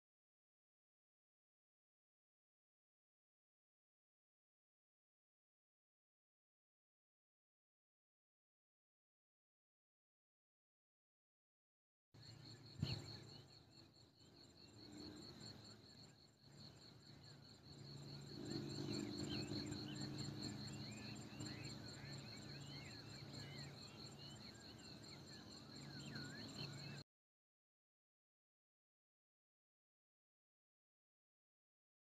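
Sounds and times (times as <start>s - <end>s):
insects trilling: 12.2s - 27.0s.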